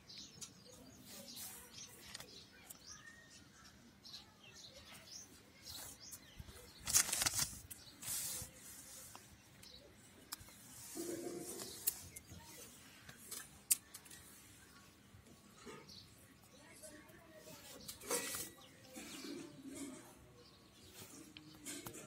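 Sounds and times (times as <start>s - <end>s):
paper rustling: 1.0s - 2.8s, 5.6s - 14.4s, 17.6s - 18.6s
page turning: 1.4s - 2.4s, 5.7s - 9.3s.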